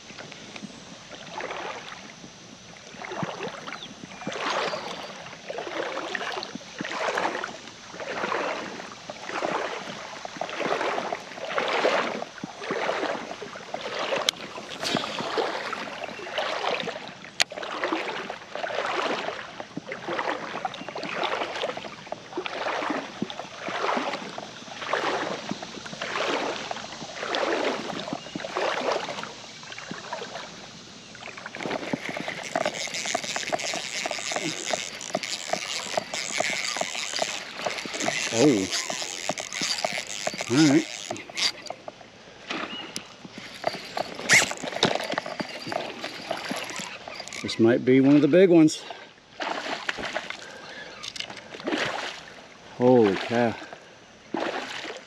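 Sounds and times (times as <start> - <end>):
wading through shallow water: 0.0 - 55.0
sharp clicks: 31.8 - 41.8.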